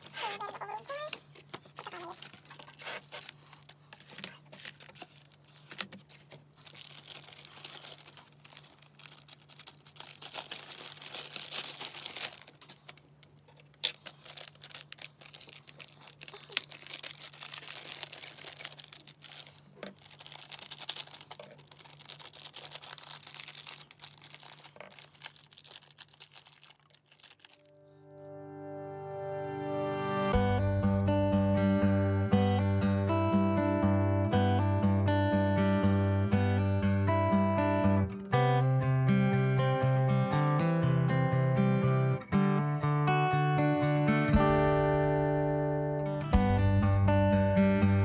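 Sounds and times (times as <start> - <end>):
plastic sleeve crinkling: 0.0 - 27.8.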